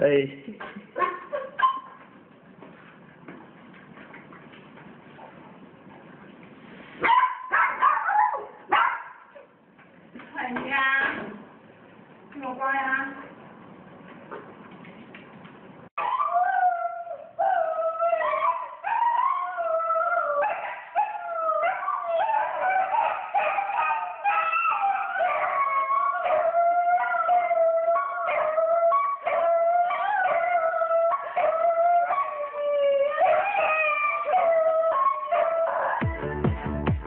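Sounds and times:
dog howling: 0:16.0 - 0:36.1.

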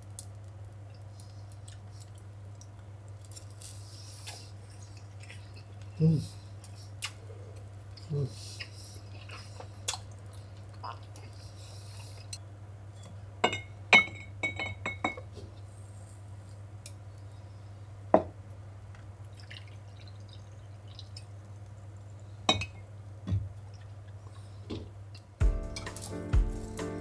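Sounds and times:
ceramic cups clinking: 0:13.4 - 0:15.3.

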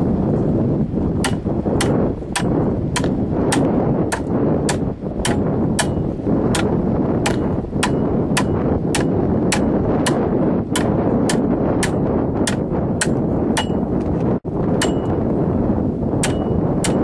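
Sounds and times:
wind noise on microphone: 0:00.0 - 0:17.0
sharp strikes on dried stalk: 0:01.2 - 0:13.8, 0:16.2 - 0:17.0.

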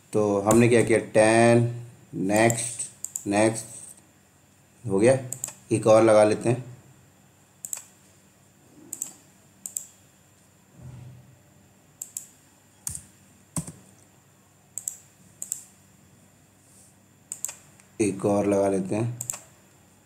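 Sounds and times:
mouse and keyboard clicks: 0:05.3 - 0:05.6, 0:07.6 - 0:07.9, 0:08.9 - 0:09.9, 0:12.0 - 0:12.3, 0:14.8 - 0:15.7, 0:17.3 - 0:17.6.

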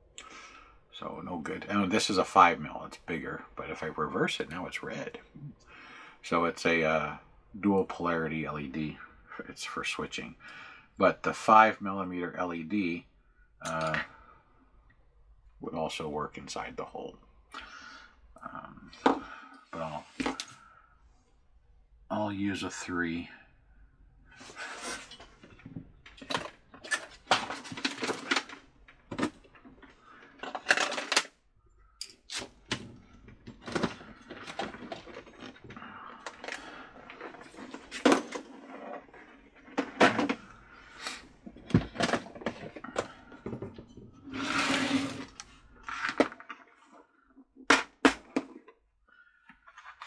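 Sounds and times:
small parts clicking and knocking: 0:25.6 - 0:31.3.

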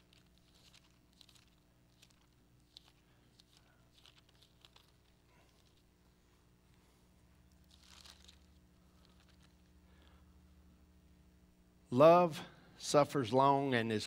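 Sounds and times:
pages being turned: 0:00.0 - 0:05.9, 0:07.4 - 0:10.2
steady low hum: 0:00.0 - 0:14.0.

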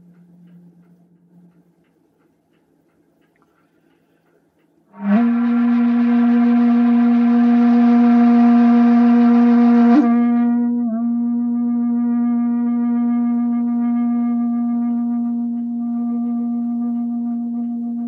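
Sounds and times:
breathy bamboo flute note: 0:04.9 - 0:18.0.

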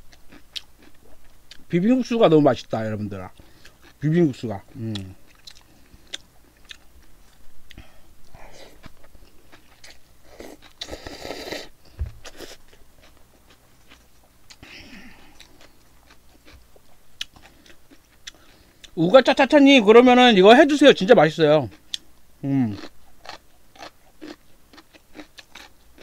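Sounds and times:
wet chewing with mouth clicks: 0:00.1 - 0:01.7, 0:04.7 - 0:19.0, 0:22.7 - 0:26.0.

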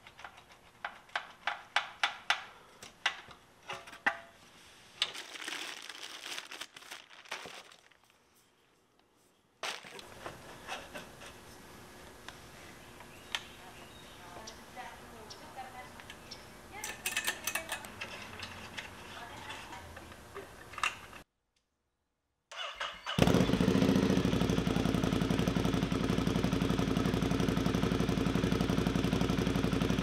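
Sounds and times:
plastic bag crinkling: 0:05.0 - 0:08.6, 0:09.6 - 0:10.2
hand tools clicking: 0:16.8 - 0:18.6.

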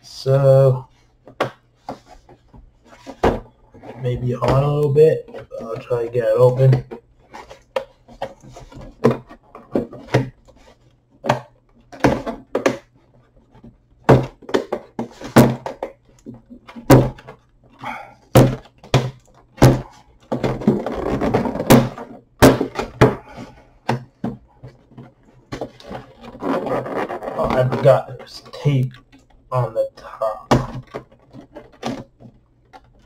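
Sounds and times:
rubbing and scraping on plastic: 0:00.8 - 0:33.0.

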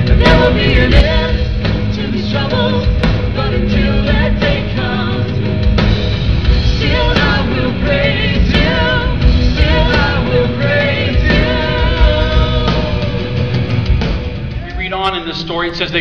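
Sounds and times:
woman singing with vibrato: 0:00.0 - 0:05.4, 0:06.7 - 0:13.5
worship band playing: 0:00.0 - 0:16.0.

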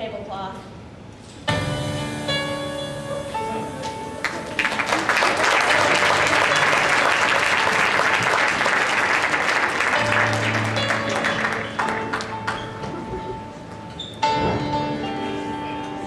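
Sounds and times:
quiet background music: 0:01.4 - 0:07.4, 0:09.8 - 0:16.0
audience applause: 0:04.2 - 0:13.2.

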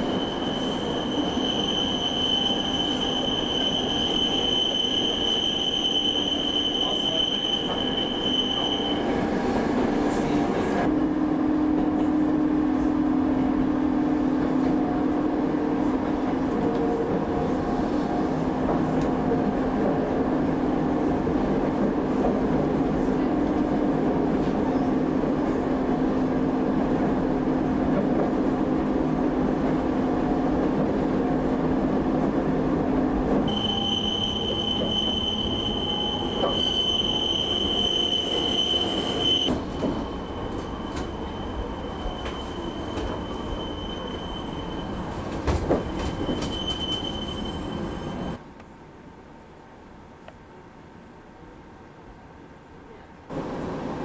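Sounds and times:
train wheels squealing: 0:00.0 - 0:09.8, 0:33.5 - 0:48.4
electric train hum and rumble: 0:00.0 - 0:54.0.

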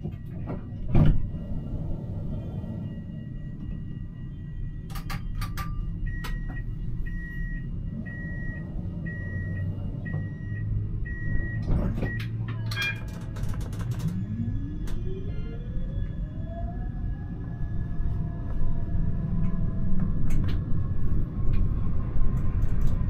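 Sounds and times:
door-closing warning beeps: 0:00.0 - 0:13.3
tram motors whining: 0:00.0 - 0:23.0.

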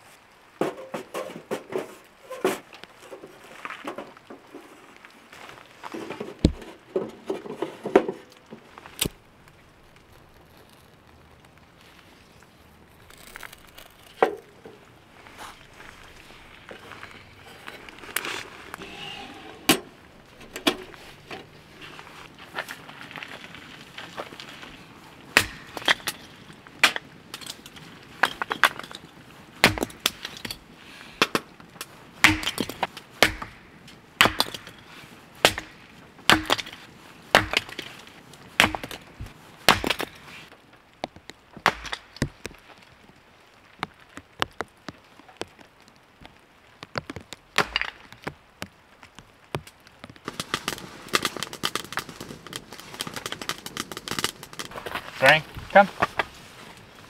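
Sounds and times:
hatchet splitting wood: 0:25.4 - 0:26.2, 0:29.6 - 0:30.5, 0:32.2 - 0:34.8, 0:35.4 - 0:37.9, 0:38.6 - 0:39.1, 0:39.7 - 0:40.2, 0:41.6 - 0:42.6.

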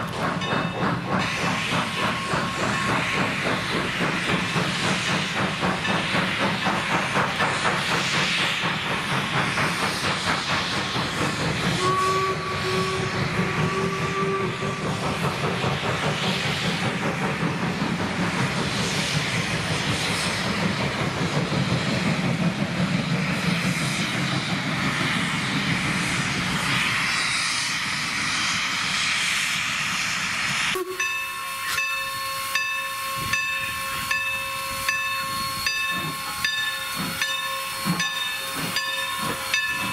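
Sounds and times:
train wheels clattering on rails: 0:00.0 - 0:29.0, 0:30.4 - 0:39.9
steam locomotive hissing: 0:00.0 - 0:39.9
steam whistle blowing: 0:11.7 - 0:15.0, 0:30.7 - 0:39.9.

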